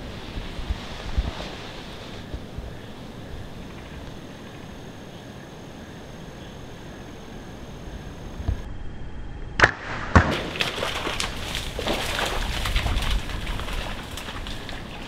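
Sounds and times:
crashing and rustling in brush: 9.6 - 15.0.

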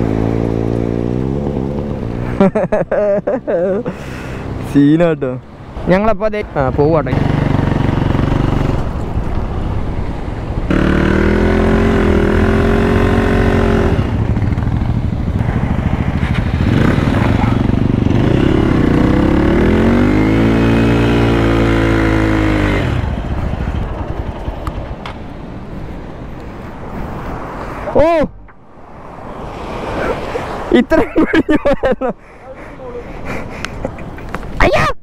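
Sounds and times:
motorcycle engine revving: 0.0 - 2.5, 6.6 - 9.1, 10.6 - 25.1.

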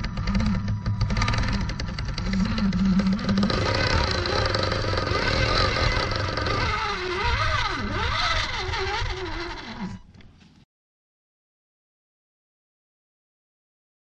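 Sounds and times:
electric toy car motor whining: 0.0 - 10.1.

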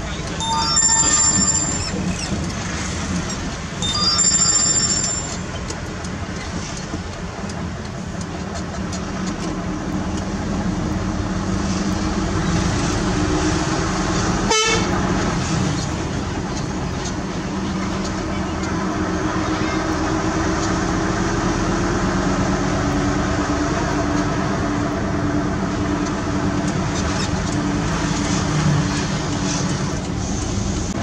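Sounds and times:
heavy vehicle engine running: 0.0 - 31.0
chord horn: 14.5 - 14.9.

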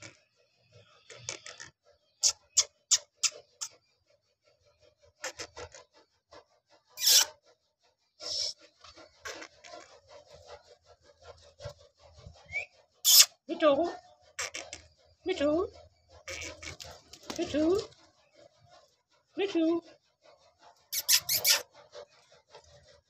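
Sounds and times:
parakeet clicking and scraping: 0.0 - 3.8, 8.3 - 13.4, 14.3 - 18.8, 20.7 - 22.9
parakeet squawking: 7.0 - 7.3, 13.0 - 13.3, 20.9 - 21.6
parakeet chirping: 20.9 - 21.6.

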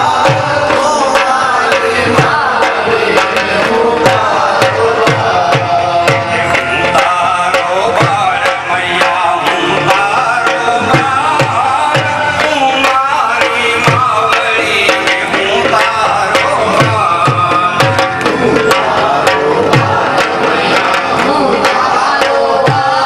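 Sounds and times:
person singing: 0.0 - 23.0
sharp hand drum strokes: 0.0 - 23.0.

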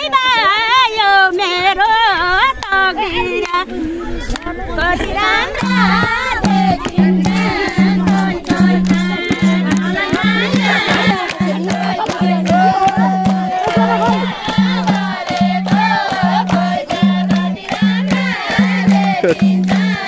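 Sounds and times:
wavering bending melody: 3.3 - 20.0
low drum beat: 5.2 - 20.0.

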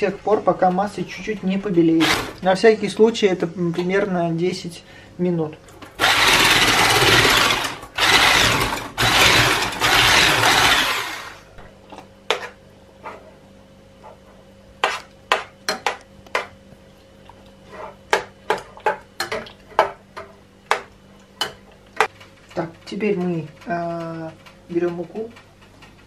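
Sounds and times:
electric hand mixer whipping: 2.0 - 2.4, 6.0 - 11.5.

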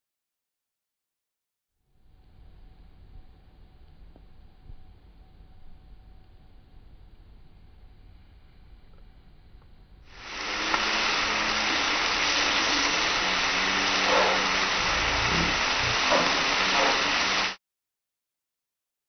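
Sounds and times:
vegetables sizzling on a griddle: 10.2 - 17.6.

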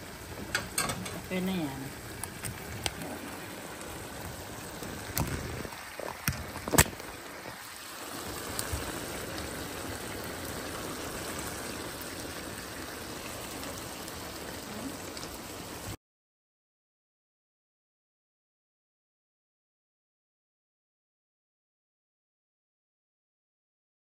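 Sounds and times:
stew bubbling and sizzling: 0.0 - 16.0.

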